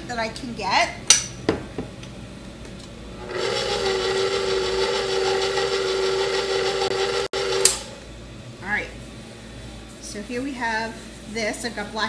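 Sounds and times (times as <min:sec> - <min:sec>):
stand mixer motor running: 0:03.2 - 0:07.7.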